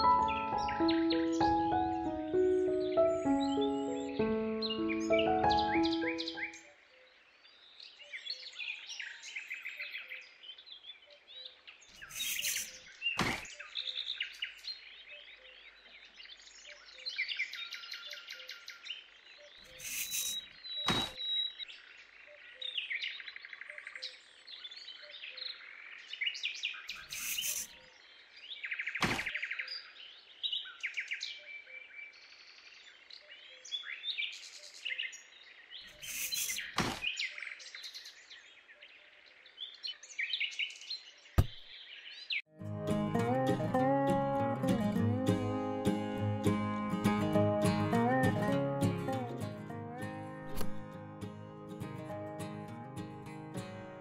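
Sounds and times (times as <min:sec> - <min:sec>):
birds chirping: 0:00.0 - 0:06.7, 0:11.8 - 0:18.8, 0:19.4 - 0:22.8, 0:26.7 - 0:27.8, 0:33.8 - 0:39.0
sharp knock: 0:41.4 - 0:41.7.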